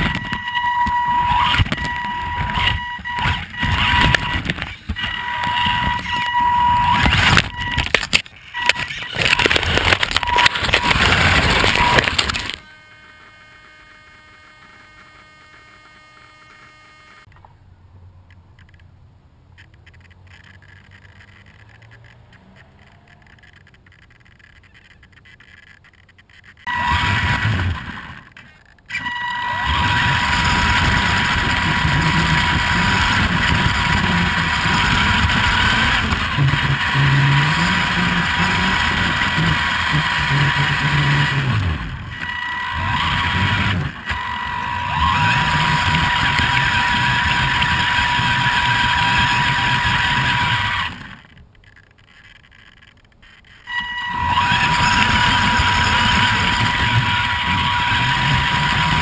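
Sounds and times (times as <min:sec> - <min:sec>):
tyres rumbling on ground: 0:00.0 - 0:12.6, 0:29.5 - 0:59.0
electric motor whine: 0:00.0 - 0:17.3, 0:26.6 - 0:51.4, 0:53.6 - 0:59.0.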